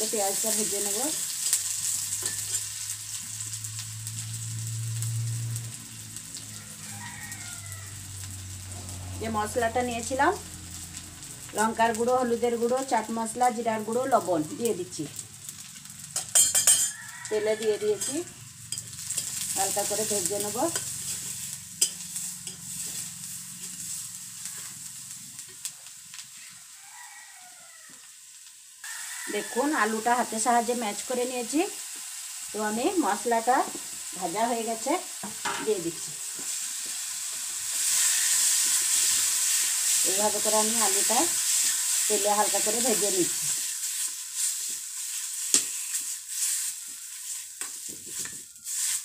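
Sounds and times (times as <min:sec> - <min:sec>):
onion sizzling in oil: 0:00.0 - 0:49.0
metal spatula scraping pan: 0:02.1 - 0:02.9, 0:16.1 - 0:24.9.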